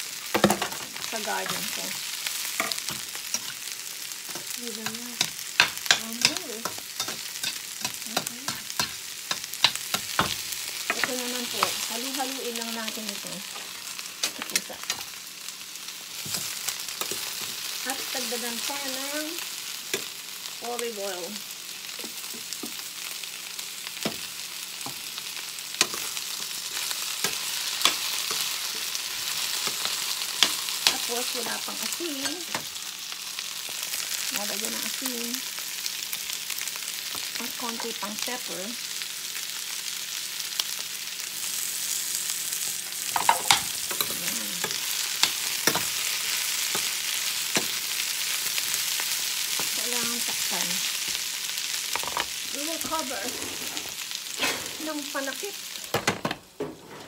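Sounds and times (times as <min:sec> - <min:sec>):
food sizzling in a skillet: 0:00.0 - 0:56.2.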